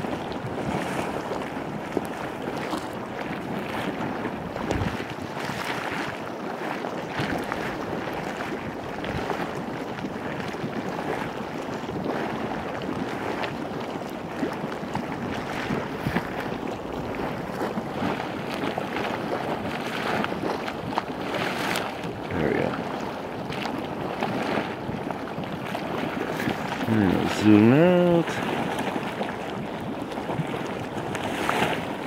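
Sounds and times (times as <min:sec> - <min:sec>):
mud pots hissing and gurgling: 0:03.2 - 0:32.0
mud popping and spattering: 0:07.0 - 0:11.2, 0:11.8 - 0:31.2.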